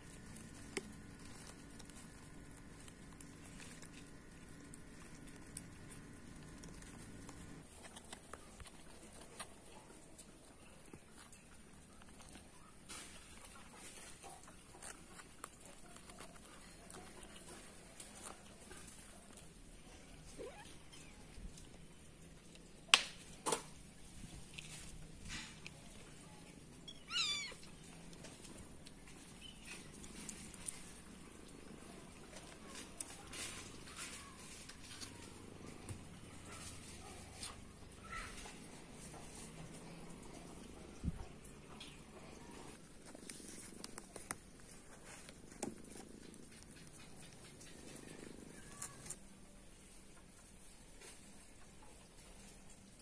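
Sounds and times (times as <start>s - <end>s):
cat purring: 0.0s - 10.9s, 23.8s - 53.0s
cat meowing: 27.0s - 27.7s.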